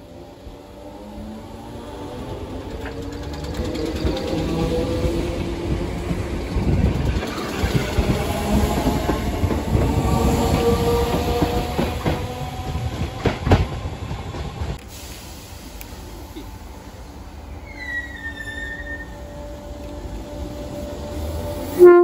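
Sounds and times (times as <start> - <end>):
electric train passing: 0.0 - 22.0
wheels clicking over rail joints: 2.5 - 5.2.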